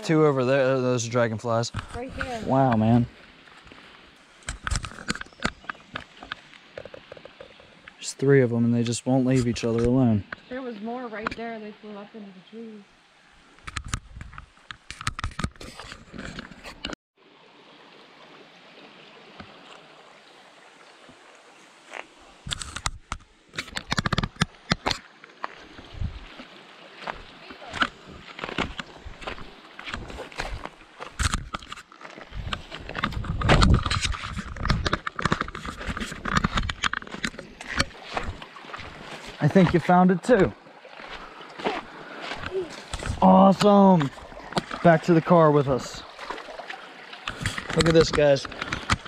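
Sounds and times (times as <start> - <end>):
creek flowing over rocks: 0.0 - 49.0
knocks and rustling: 27.8 - 39.9.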